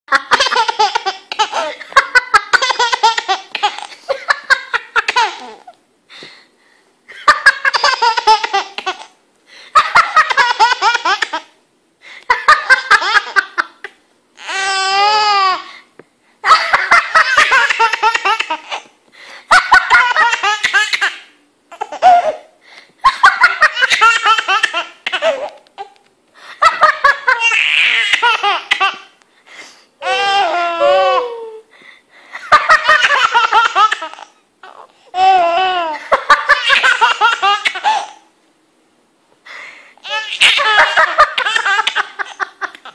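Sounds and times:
baby laughing: 0:00.1 - 0:05.8, 0:07.1 - 0:09.2, 0:09.8 - 0:11.6, 0:12.3 - 0:15.7, 0:16.4 - 0:18.9, 0:19.5 - 0:26.0, 0:26.6 - 0:29.2, 0:32.5 - 0:38.3, 0:40.0 - 0:42.9.

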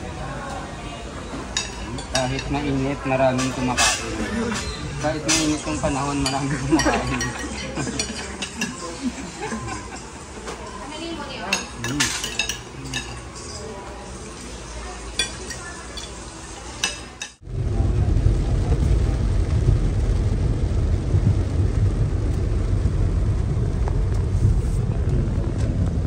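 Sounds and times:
murmur of voices: 0:00.0 - 0:19.1
dishes and cutlery clinking: 0:01.5 - 0:10.8, 0:11.4 - 0:13.7, 0:15.1 - 0:17.4
loud low rumbling: 0:17.4 - 0:26.0.

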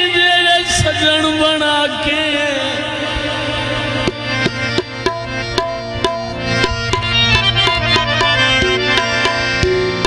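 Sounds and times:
harmonium melody: 0:00.0 - 0:10.0
hand drums beating: 0:04.0 - 0:10.0.

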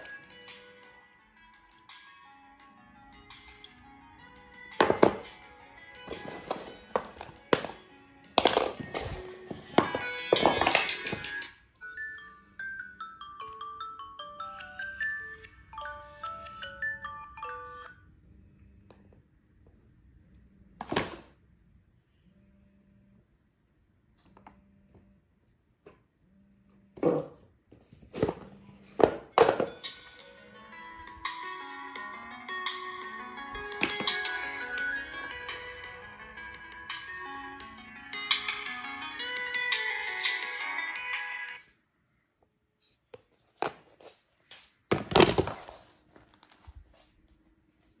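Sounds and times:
cardboard boxes knocking on table: 0:04.8 - 0:05.2
cardboard boxes rustling and clattering: 0:06.1 - 0:07.8.

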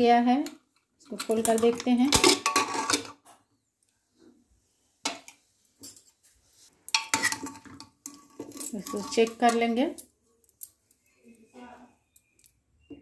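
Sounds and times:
metal lid scraping and ringing: 0:02.2 - 0:03.1, 0:07.0 - 0:09.8.

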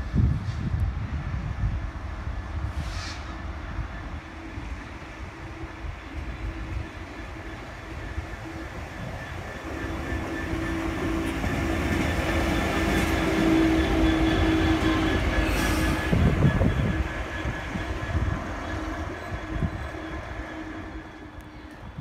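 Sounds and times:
diesel locomotive engine: 0:00.0 - 0:22.0
wheels on rails: 0:05.5 - 0:22.0.

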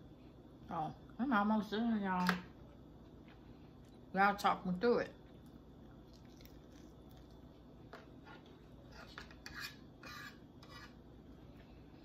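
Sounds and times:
fork scraping on plate: 0:08.2 - 0:11.0.

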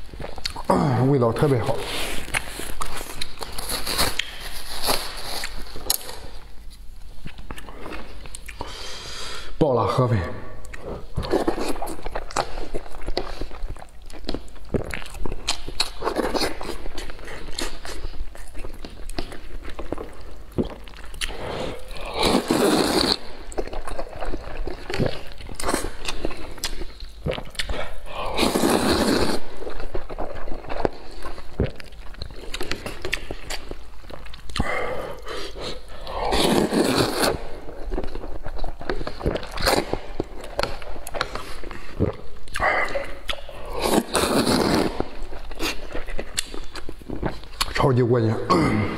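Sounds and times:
wet chewing and smacking: 0:00.0 - 0:08.7, 0:10.6 - 0:48.0
noodle slurping: 0:19.4 - 0:33.7, 0:34.6 - 0:47.6.

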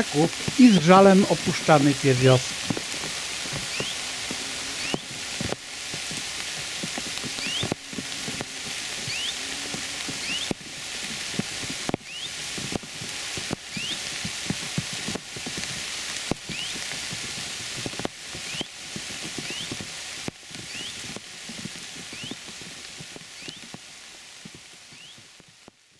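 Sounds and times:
raindrops clicking: 0:00.0 - 0:25.8
heavy rain falling: 0:00.0 - 0:25.9
bird rising call: 0:03.7 - 0:05.1, 0:07.4 - 0:07.7, 0:09.1 - 0:09.5, 0:10.2 - 0:10.5.

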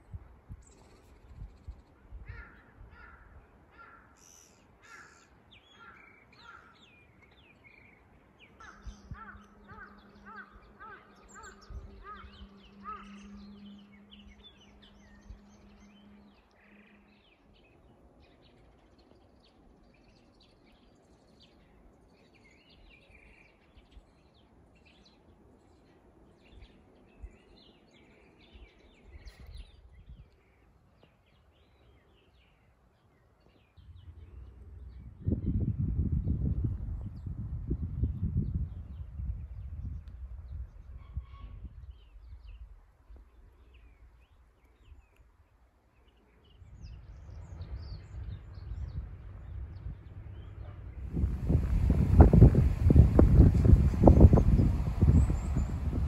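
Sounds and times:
small birds chirping: 0:41.9 - 0:56.0.

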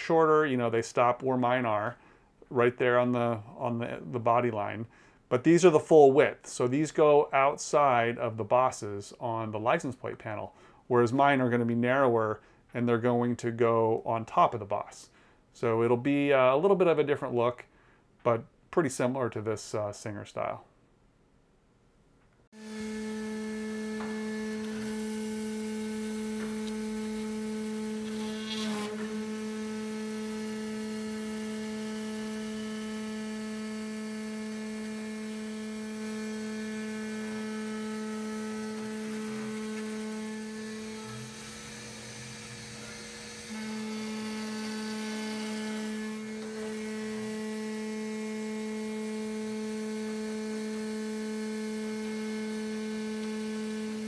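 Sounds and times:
router milling aluminium whine: 0:22.6 - 0:54.0
short rasp: 0:22.8 - 0:31.9.

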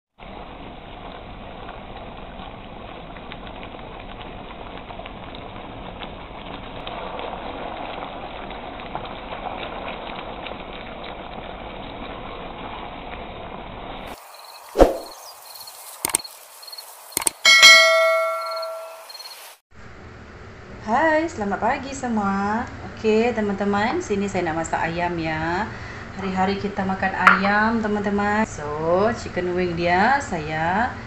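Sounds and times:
chicken sizzling in a wok: 0:00.2 - 0:27.2
loud whoosh: 0:14.8 - 0:15.2.

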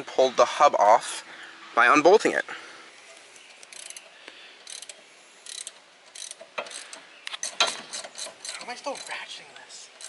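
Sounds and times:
hand ratchet clicking: 0:03.6 - 0:09.2.

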